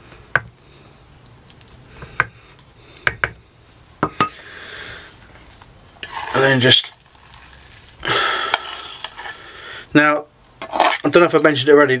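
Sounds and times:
spoon scraping: 5.0 - 9.7, 10.6 - 11.4.

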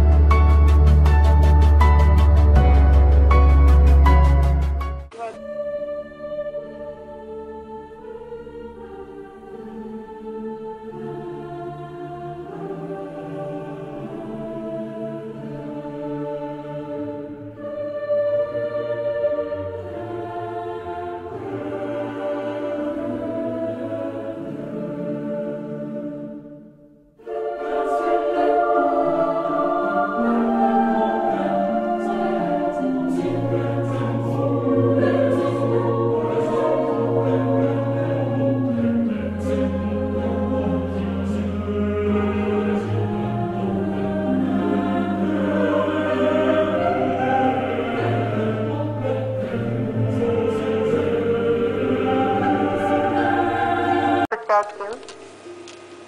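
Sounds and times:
choral music in sustained chords: 0.0 - 54.4.

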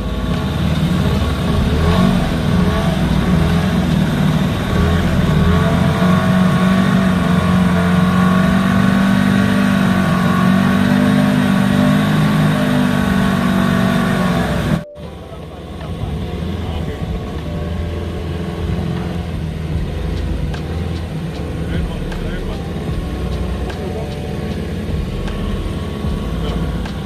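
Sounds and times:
motorboat engine running: 0.0 - 27.0.

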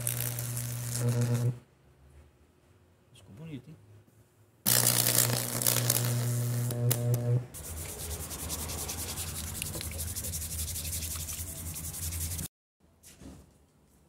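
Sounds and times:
electrical arcing hum with crackling: 0.0 - 1.7, 4.7 - 8.6
stiff brush scrubbing wood: 7.6 - 12.5.

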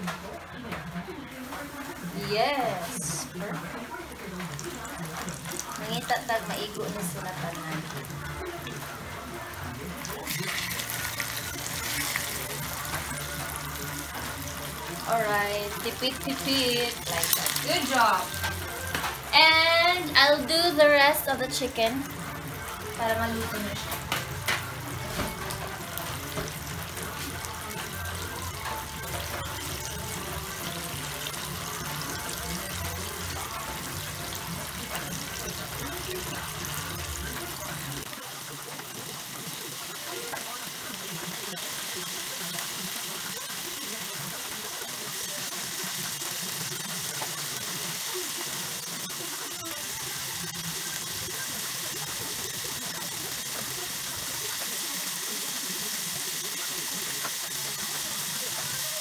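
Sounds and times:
chicken sizzling in hot oil: 0.0 - 59.0.

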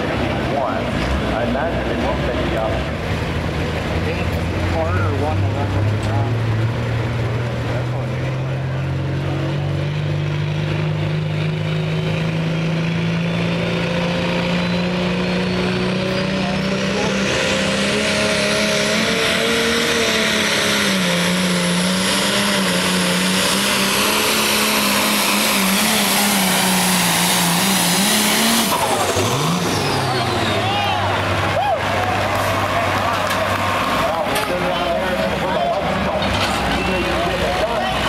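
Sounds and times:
diesel engine at high revs: 0.0 - 38.0
turbo whine climbing: 4.1 - 37.9.

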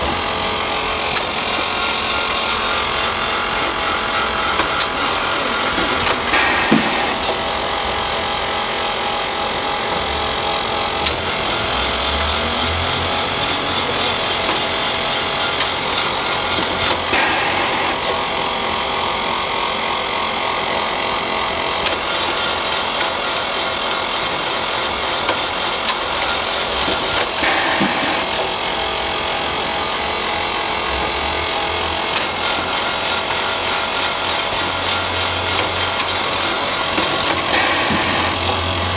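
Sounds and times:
packing machine running: 0.0 - 38.9
sharp machine clicks: 1.0 - 7.5, 10.3 - 18.3, 21.7 - 28.6, 32.1 - 38.9.

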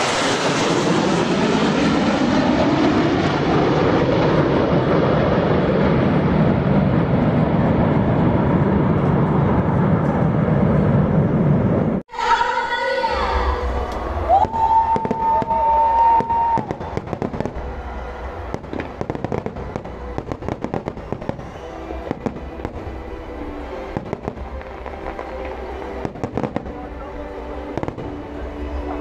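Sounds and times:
fireworks bursting and crackling: 0.0 - 1.7, 14.1 - 27.0, 27.6 - 29.0
low rumble: 0.0 - 12.0
music playing: 12.1 - 29.0.

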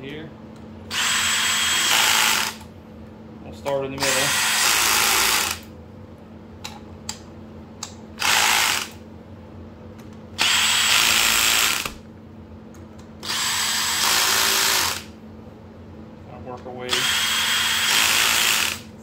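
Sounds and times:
cordless driver running bolts: 0.9 - 2.6, 13.2 - 15.0, 16.9 - 18.8.

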